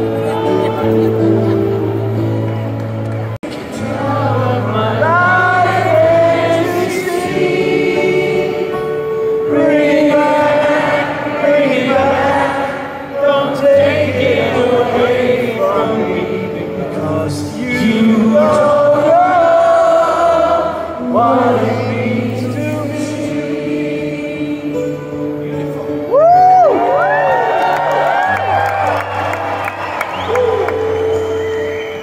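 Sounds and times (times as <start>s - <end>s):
amplified acoustic guitar: 0.0s - 32.0s
audience singing along: 3.5s - 25.3s.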